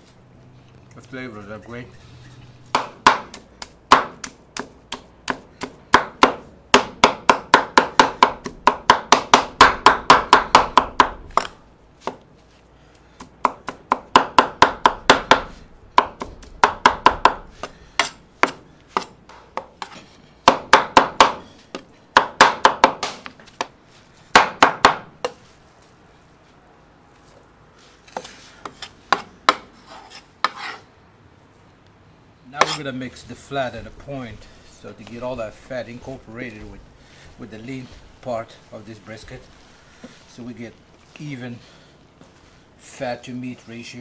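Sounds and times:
cleaver chopping on wooden board: 2.7s - 12.2s, 13.2s - 23.7s, 24.3s - 25.4s.

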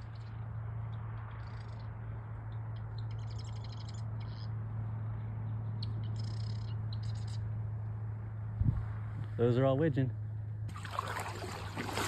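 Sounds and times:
ducks whistling and chattering: 2.9s - 4.5s, 5.8s - 7.4s.

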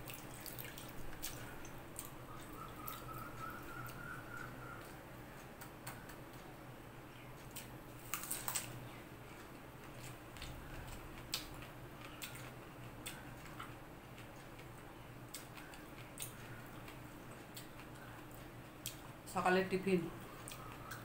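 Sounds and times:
faint low hum: 0.0s - 21.0s
chewing clicks: 9.4s - 19.1s.

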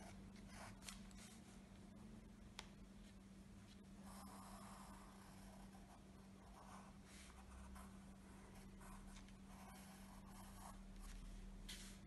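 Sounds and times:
steady low hum: 0.0s - 12.0s
pencil scratching on paper: 4.0s - 11.2s.

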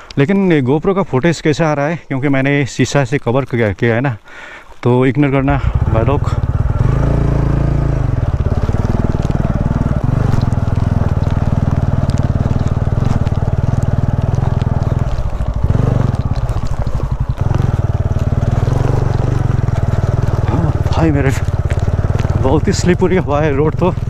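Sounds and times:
motorcycle engine running: 5.4s - 24.0s.

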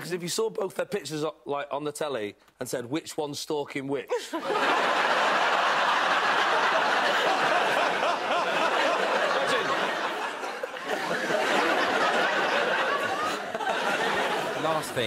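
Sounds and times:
studio audience laughing: 4.1s - 15.0s.

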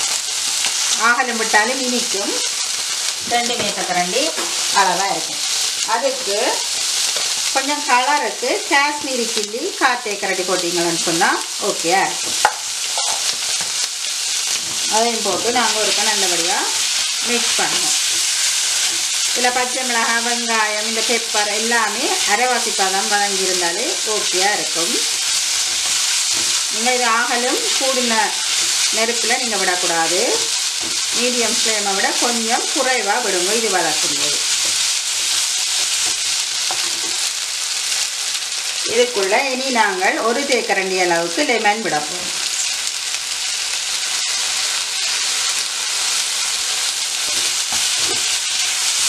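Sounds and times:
vegetables sizzling in a wok: 0.0s - 49.0s
spatula stirring and scraping: 12.2s - 17.0s, 24.2s - 26.8s, 34.4s - 37.3s.

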